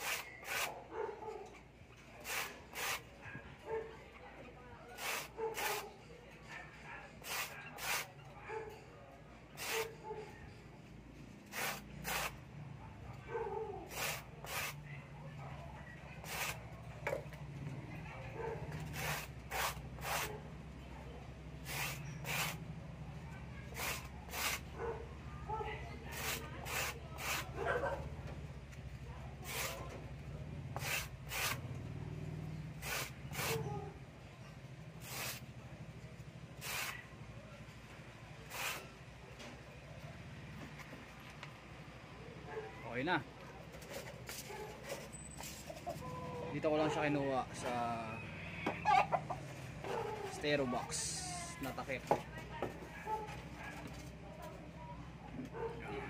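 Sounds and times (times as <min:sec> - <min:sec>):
styrofoam scraping on concrete: 0:00.0 - 0:00.8, 0:02.2 - 0:03.1, 0:05.0 - 0:05.9, 0:07.2 - 0:08.1, 0:09.6 - 0:09.9, 0:11.5 - 0:12.4, 0:13.9 - 0:14.8, 0:16.2 - 0:16.6, 0:18.9 - 0:20.4, 0:21.6 - 0:22.6, 0:23.7 - 0:24.7, 0:26.0 - 0:27.6, 0:29.4 - 0:29.9, 0:30.8 - 0:31.6, 0:32.8 - 0:33.6, 0:35.0 - 0:35.4, 0:36.6 - 0:37.0, 0:38.4 - 0:39.0.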